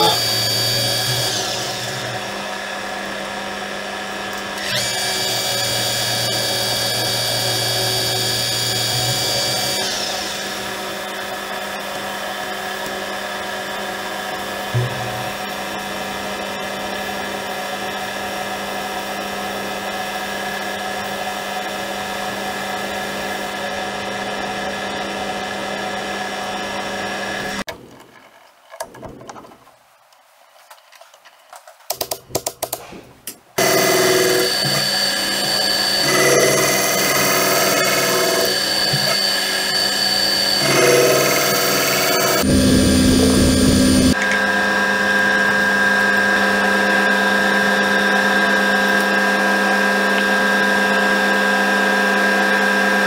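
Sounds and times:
tool cutting metal: 0.0s - 2.4s, 4.4s - 10.8s, 32.7s - 44.6s
metal lathe whining: 0.0s - 3.5s, 4.3s - 13.0s, 33.6s - 53.0s
sharp knock: 14.8s - 15.4s.

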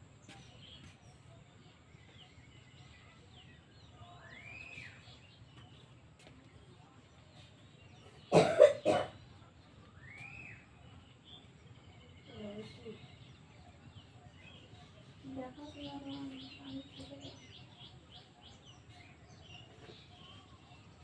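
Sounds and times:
person coughing: 8.3s - 9.2s
faint bird whistle calls: 10.0s - 10.7s.

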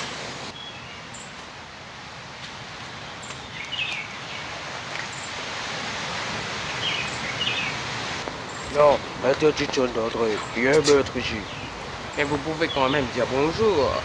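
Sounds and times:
rushing outdoor background noise: 0.0s - 14.0s
bird chirps: 3.2s - 4.5s, 6.7s - 7.8s, 8.4s - 8.8s, 10.3s - 13.3s.

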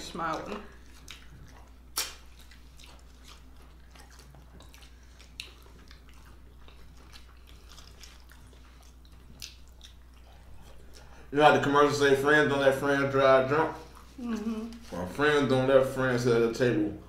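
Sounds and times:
faint low hum: 0.0s - 17.0s
chewing and lip smacks: 0.2s - 11.3s.

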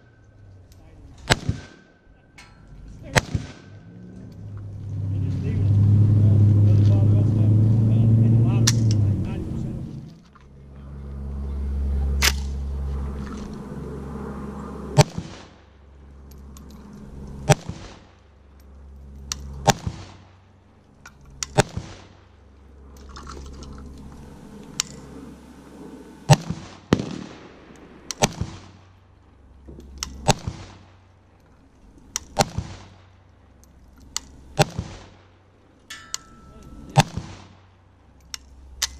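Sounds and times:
rifle shots with echo: 1.2s - 2.0s, 3.0s - 3.9s, 21.5s - 22.2s, 26.3s - 28.8s, 30.2s - 31.0s, 32.3s - 33.0s, 34.6s - 35.3s, 36.8s - 37.6s.

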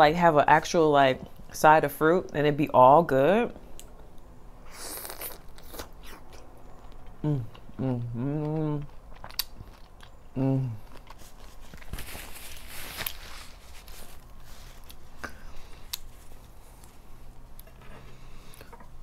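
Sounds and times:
woman humming mm: 7.2s - 8.9s, 10.4s - 10.8s
paper napkin rustling: 11.1s - 15.2s.

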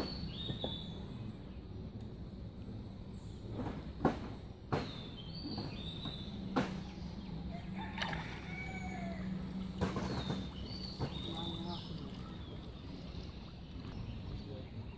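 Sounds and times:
water sloshing and splashing: 3.4s - 14.9s
sharp splashes: 7.8s - 14.6s.

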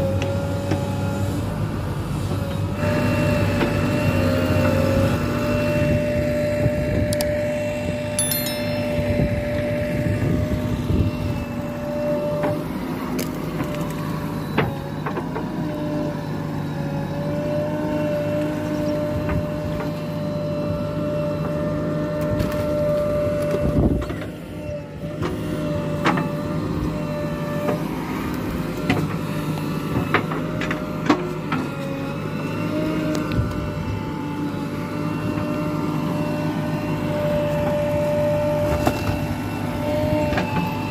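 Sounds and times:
diesel engine under load: 0.0s - 8.2s, 9.2s - 40.9s
high whine: 8.2s - 10.4s.

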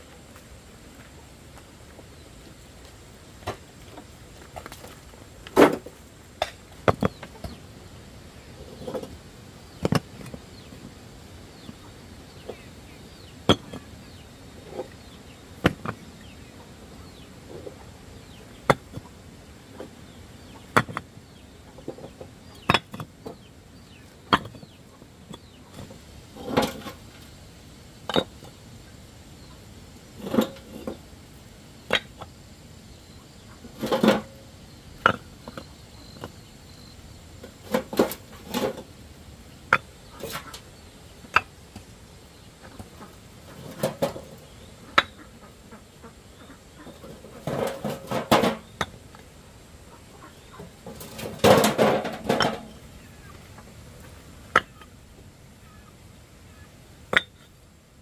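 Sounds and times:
chickens clucking: 6.4s - 7.8s, 8.4s - 27.4s, 33.1s - 39.0s, 39.7s - 49.2s, 49.9s - 55.0s.

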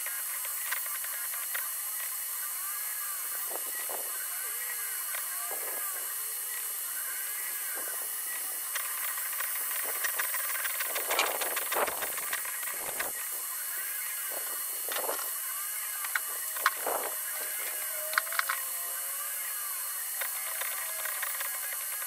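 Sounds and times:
steady hiss: 0.0s - 22.0s
stepper motors whining: 0.0s - 22.0s
sharp ticks: 8.7s - 13.2s, 16.0s - 17.0s, 18.1s - 18.6s.

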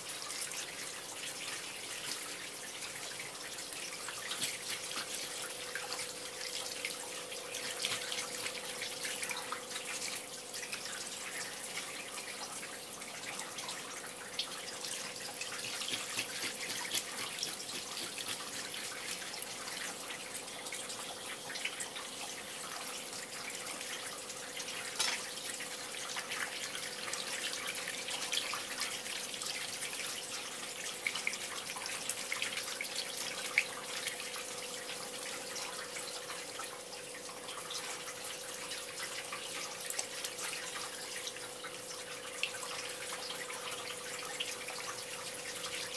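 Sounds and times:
tap water splashing: 0.0s - 11.1s, 13.5s - 20.3s, 24.6s - 30.2s
faint steady hum: 0.0s - 45.9s
knife scraping fish scales: 15.6s - 19.4s.

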